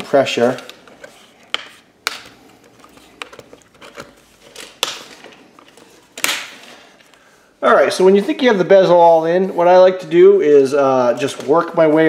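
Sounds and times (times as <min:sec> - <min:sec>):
plastic clips snapping into place: 0:01.5 - 0:02.4, 0:06.2 - 0:06.6.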